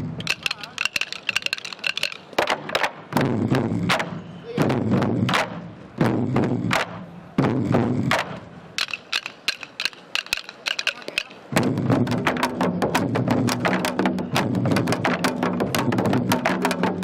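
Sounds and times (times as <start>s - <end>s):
drumsticks clicking: 0.2s - 2.6s, 8.8s - 11.4s.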